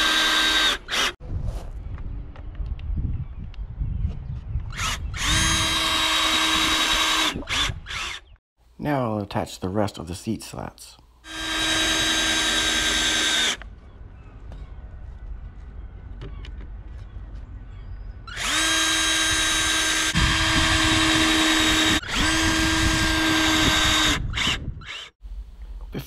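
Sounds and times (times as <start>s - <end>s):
cordless drill whining: 0.0s - 1.2s, 4.7s - 8.3s, 11.3s - 13.6s, 18.3s - 25.2s.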